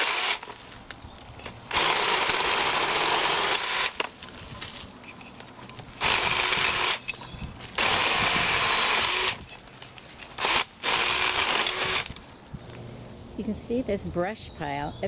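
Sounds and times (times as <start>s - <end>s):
chainsaw cutting branches: 0.0s - 0.7s, 1.4s - 4.9s, 5.7s - 12.3s.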